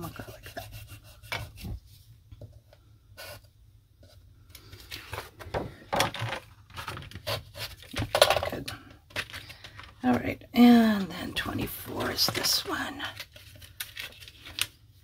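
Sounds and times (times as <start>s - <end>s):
cardstock sheet rustling and flapping: 11.7s - 15.0s.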